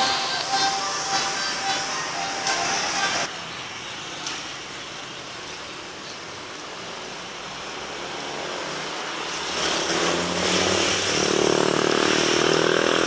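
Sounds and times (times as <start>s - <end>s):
cars driving past: 6.4s - 13.0s.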